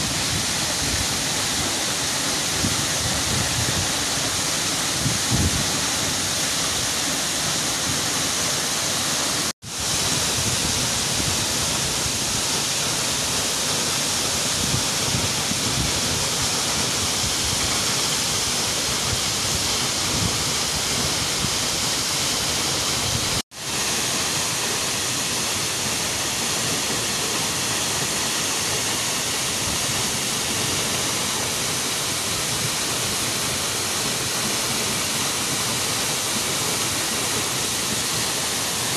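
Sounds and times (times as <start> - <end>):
forest stream rushing over rocks: 0.0 - 38.9
waterfall falling into a pool: 0.0 - 38.9.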